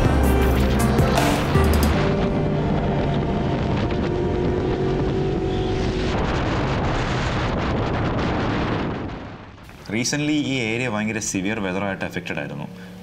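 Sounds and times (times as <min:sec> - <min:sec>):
motorcycle engine running: 0:00.0 - 0:07.6
wind rushing on microphone: 0:01.9 - 0:10.3.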